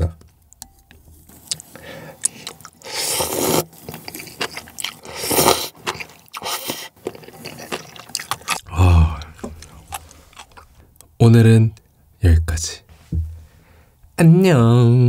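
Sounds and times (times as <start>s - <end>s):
chewing: 1.3s - 11.1s
noodles slurped noisily: 2.2s - 8.6s.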